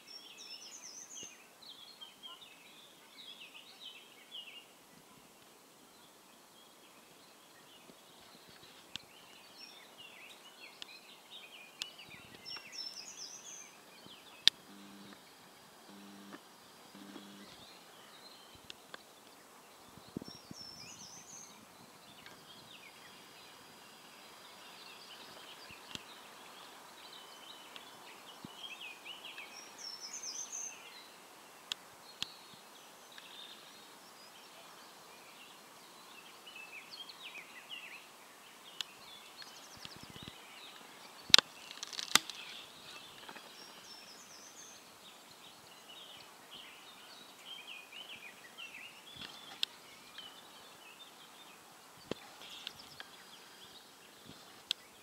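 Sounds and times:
faint steady hiss: 0.0s - 55.0s
birds chirping and singing: 7.0s - 31.1s
sharp clicks: 41.3s - 42.4s.

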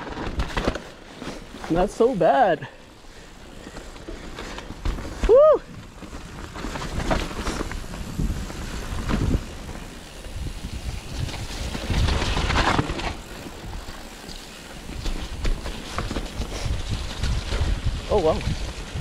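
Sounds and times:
bike rattling over bumps: 0.0s - 19.0s
bike tyres on dirt trail: 0.0s - 19.0s
wind buffeting microphone: 4.8s - 14.2s, 14.8s - 19.0s.

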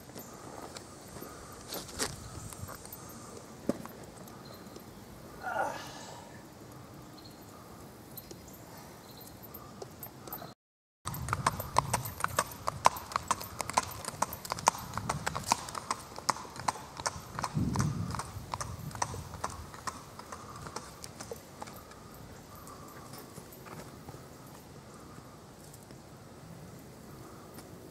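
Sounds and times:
hooves on asphalt: 0.0s - 4.9s, 11.1s - 27.9s.

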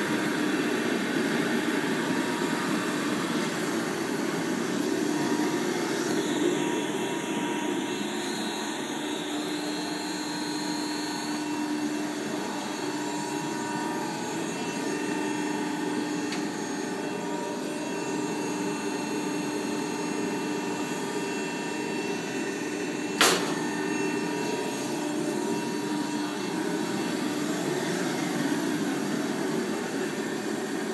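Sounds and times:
hydraulic press pump hum: 9.1s - 20.2s, 20.8s - 27.3s.

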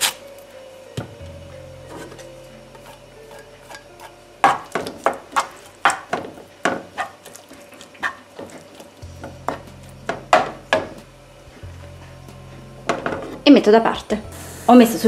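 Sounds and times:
wooden spoon scraping a frying pan: 1.8s - 10.9s.

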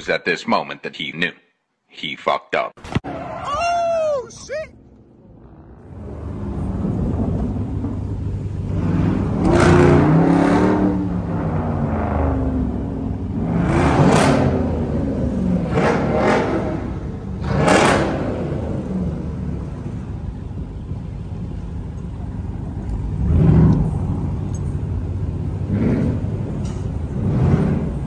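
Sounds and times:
car engines rumbling: 3.1s - 28.0s
cars revving and passing by: 4.9s - 28.0s.

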